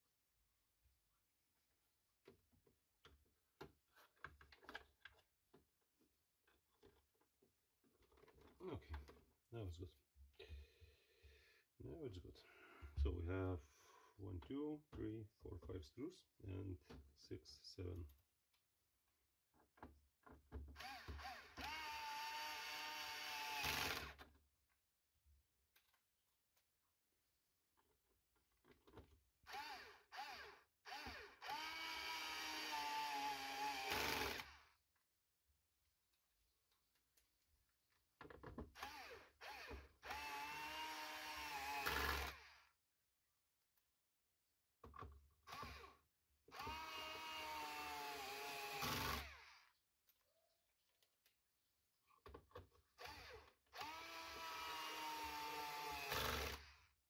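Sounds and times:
electric screwdriver motor whirring: 29.5 - 34.6, 38.8 - 42.6, 46.6 - 49.7, 53.0 - 56.8
electric screwdriver motor whine: 53.0 - 56.7.

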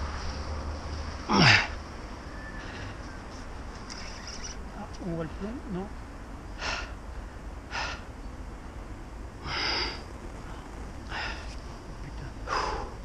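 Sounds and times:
man breathing heavily: 2.6 - 3.2, 6.5 - 8.2, 9.4 - 11.6, 12.4 - 13.0.

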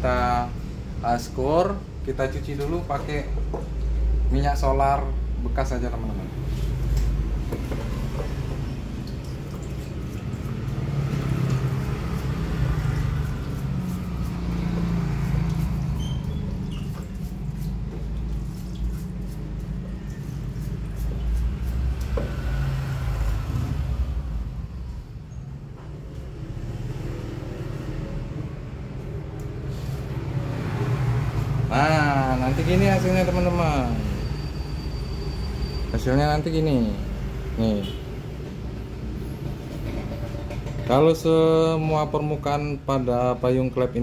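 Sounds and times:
engine rumbling: 0.0 - 34.3.

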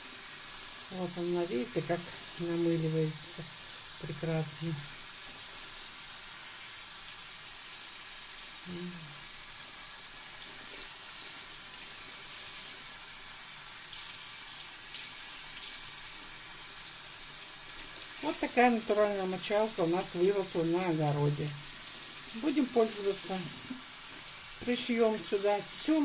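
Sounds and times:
sponge rinsed and squeezed: 8.9 - 26.0
tap water running into sink: 9.7 - 25.4.

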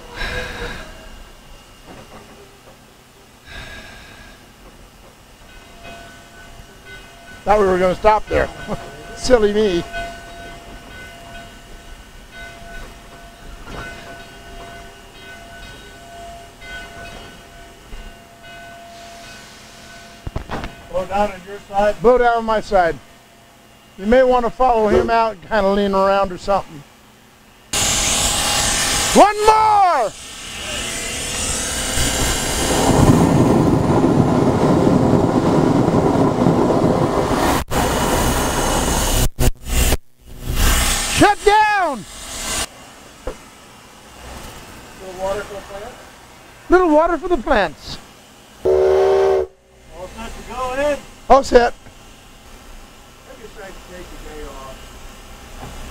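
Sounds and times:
steam locomotive rumble: 0.0 - 55.9
steam blowdown rushing: 27.8 - 42.7.

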